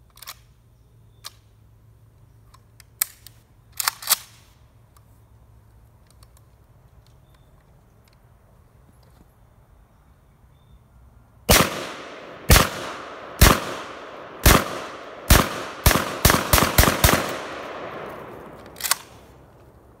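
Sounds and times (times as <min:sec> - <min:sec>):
shotgun shots echoing: 0:11.5 - 0:19.4.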